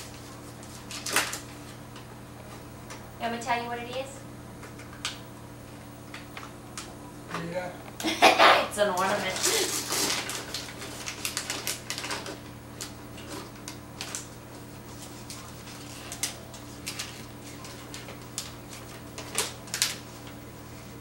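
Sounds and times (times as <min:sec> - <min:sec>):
wrapping paper crinkling: 0:00.0 - 0:01.8, 0:09.0 - 0:21.0.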